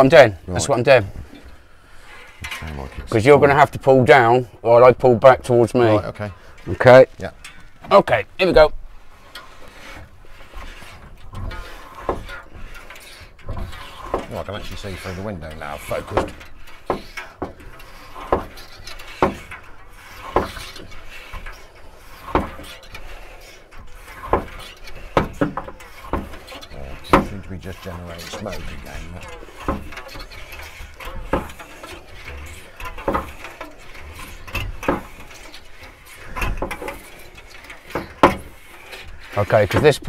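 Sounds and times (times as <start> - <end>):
cutting wire squeaking: 9.3 - 40.0.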